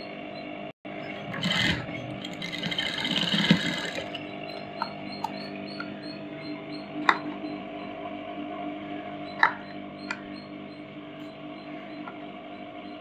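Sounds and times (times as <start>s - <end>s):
sewing machine stitching: 1.2s - 4.2s.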